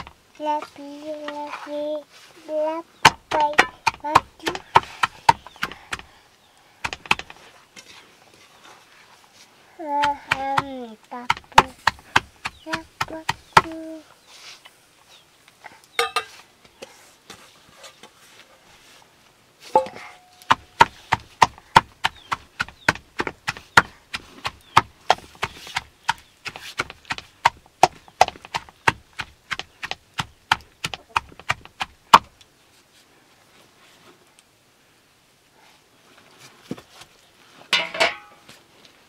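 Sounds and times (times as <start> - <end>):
wooden tool pounding metal pan: 3.0 - 6.0.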